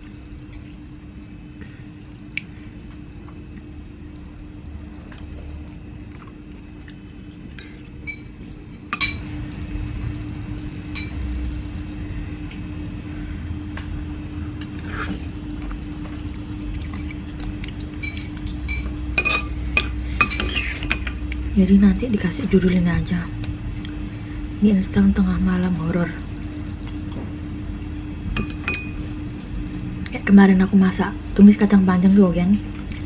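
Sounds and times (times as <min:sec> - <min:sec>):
steady low hum: 0:00.0 - 0:33.0
cutlery clinking on ceramic bowl: 0:08.9 - 0:09.2, 0:18.0 - 0:21.2.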